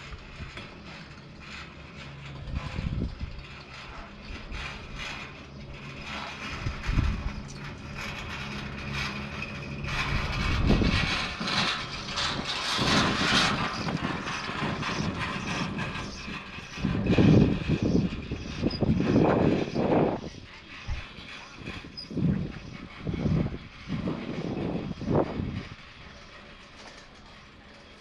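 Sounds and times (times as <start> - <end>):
chairlift rumbling clatter: 0.0 - 28.0
chairlift humming: 3.8 - 28.0.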